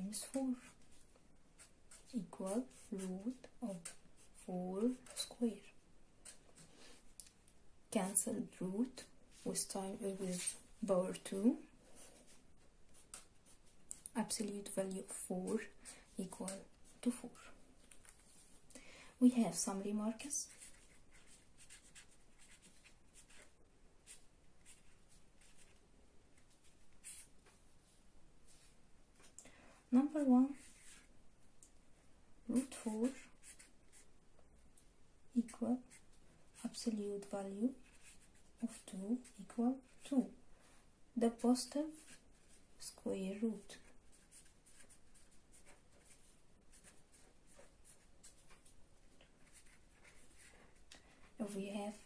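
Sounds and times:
marker pen scratching on paper: 0:00.0 - 0:07.1, 0:08.8 - 0:18.6, 0:19.4 - 0:27.7, 0:30.0 - 0:31.1, 0:32.5 - 0:34.2, 0:35.4 - 0:40.4, 0:41.3 - 0:52.0.

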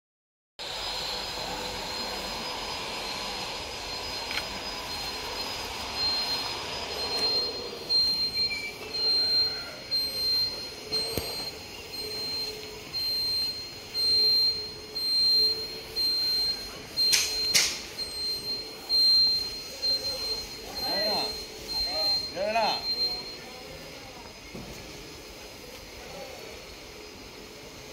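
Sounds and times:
high-pitched electronic beeping: 0:00.6 - 0:23.9
sharp clicks: 0:10.3 - 0:11.6, 0:17.0 - 0:17.9.

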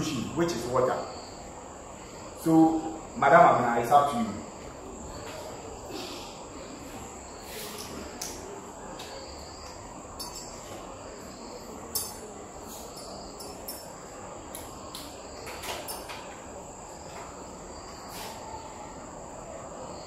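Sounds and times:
glassware clicking and knocking: 0:10.2 - 0:10.6.

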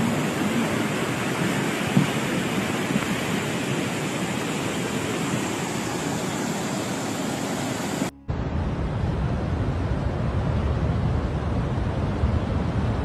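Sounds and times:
flood water rushing: 0:00.0 - 0:08.6.

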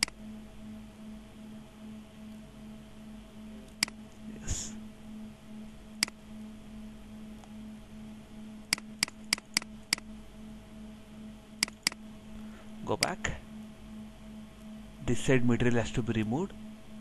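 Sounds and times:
low electrical hum: 0:00.0 - 0:17.0
computer mouse clicks: 0:03.7 - 0:04.0, 0:08.7 - 0:10.1, 0:11.6 - 0:12.0.

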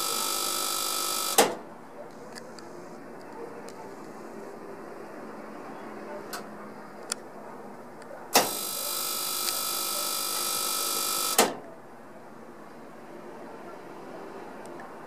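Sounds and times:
spark igniter buzzing: 0:00.0 - 0:01.6
heater clicks: 0:00.8 - 0:01.6, 0:08.4 - 0:08.7.

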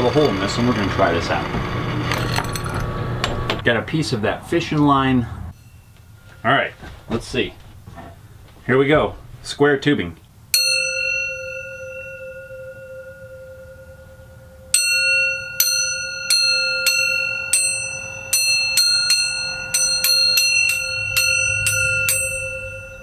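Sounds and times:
metal tube chime struck with pliers: 0:10.6 - 0:23.0.

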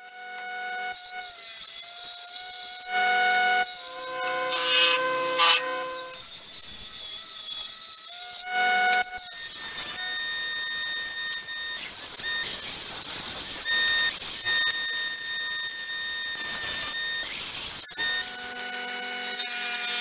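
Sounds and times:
jointer-planer motor whine: 0:00.0 - 0:06.2
planer cutting board: 0:02.9 - 0:06.2.

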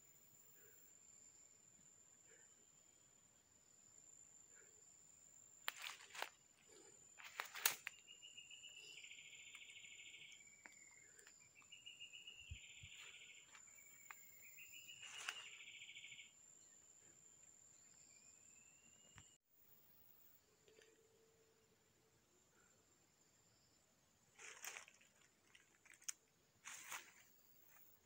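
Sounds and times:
insect buzzy trill: 0:00.0 - 0:21.8
twigs cracking: 0:05.6 - 0:06.4, 0:07.2 - 0:08.0, 0:24.4 - 0:27.8
footsteps crunching through dry leaves: 0:05.7 - 0:06.3, 0:07.2 - 0:07.9, 0:14.9 - 0:15.6, 0:24.4 - 0:27.3.

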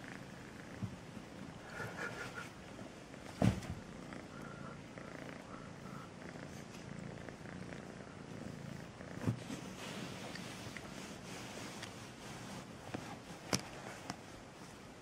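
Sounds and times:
kitten purring: 0:00.0 - 0:14.4
short thump: 0:03.3 - 0:03.8.

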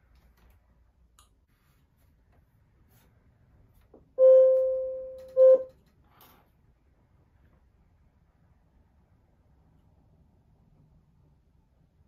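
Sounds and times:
clock chime tones: 0:04.2 - 0:05.7.

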